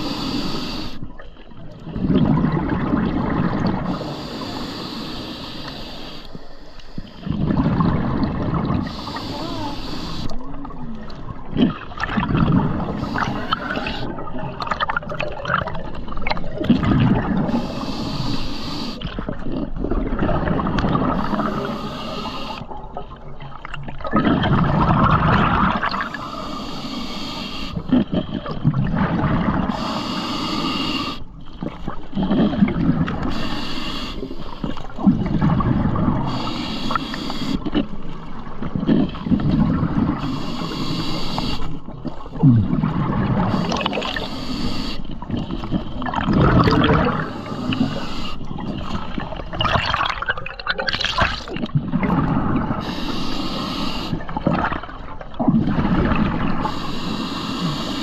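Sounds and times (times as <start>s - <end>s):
regulator inhale hiss: 0.0s - 1.0s, 3.9s - 7.2s, 8.8s - 10.4s, 12.9s - 14.1s, 17.5s - 19.0s, 21.2s - 22.7s, 26.1s - 27.8s, 29.7s - 31.3s, 33.2s - 34.8s, 36.3s - 37.8s, 40.2s - 41.8s, 43.5s - 45.2s, 47.3s - 48.5s, 52.8s - 54.3s, 56.6s - 58.0s
bubbling exhales underwater: 1.8s - 4.1s, 7.2s - 9.6s, 10.5s - 17.8s, 19.0s - 26.3s, 31.6s - 33.3s, 34.8s - 37.0s, 41.8s - 44.3s, 45.2s - 52.9s, 54.1s - 56.8s.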